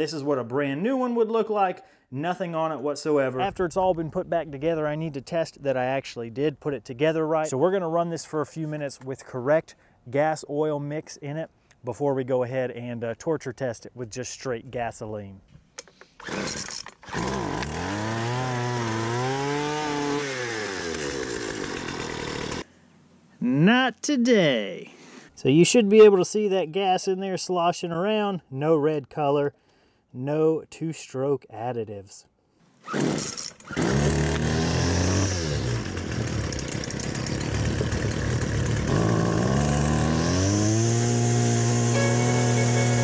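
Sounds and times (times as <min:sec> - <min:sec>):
string trimmer pull-start: 0:15.8 - 0:22.7, 0:32.8 - 0:43.0
string trimmer engine revving: 0:16.2 - 0:22.7, 0:32.8 - 0:43.0.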